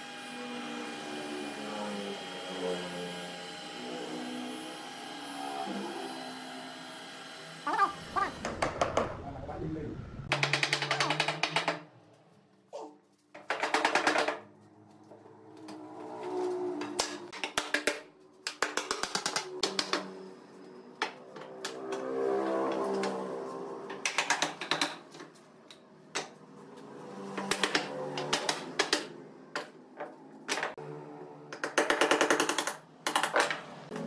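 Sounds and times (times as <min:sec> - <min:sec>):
steady tones rising and falling: 0:07.5 - 0:12.4.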